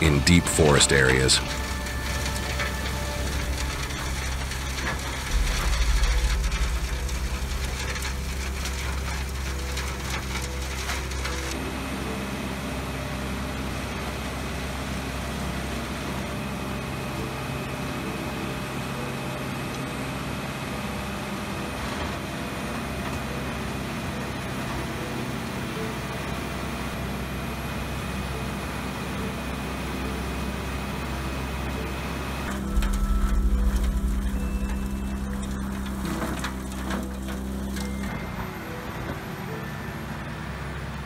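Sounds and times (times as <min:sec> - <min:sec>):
wood shredder humming: 0:00.0 - 0:41.0
wood cracking and crunching: 0:00.1 - 0:11.6, 0:32.5 - 0:38.1.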